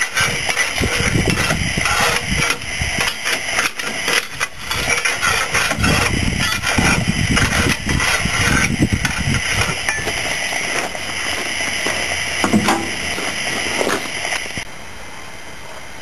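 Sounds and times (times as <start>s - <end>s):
steam hissing: 0.0s - 14.7s.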